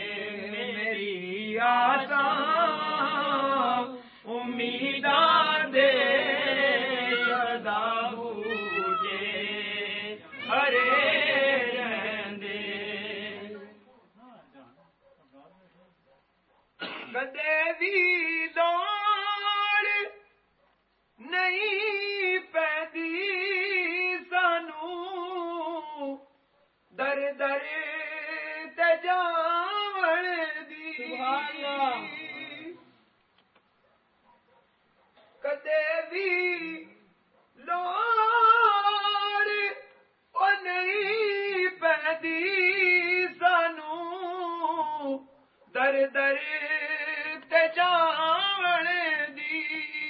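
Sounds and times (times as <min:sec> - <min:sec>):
person singing unaccompanied: 0:00.0 - 0:13.9, 0:21.2 - 0:26.3, 0:27.0 - 0:33.0, 0:35.4 - 0:37.0, 0:37.6 - 0:50.0.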